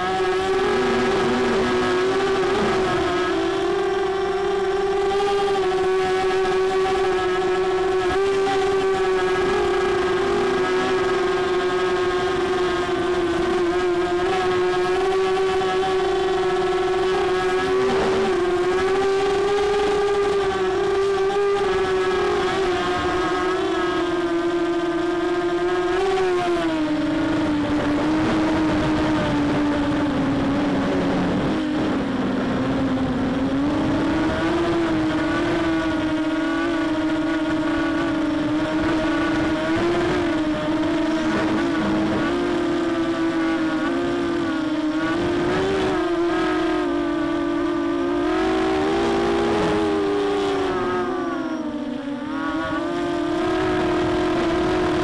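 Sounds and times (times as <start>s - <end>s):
quadcopter motors whining: 0.0s - 55.0s.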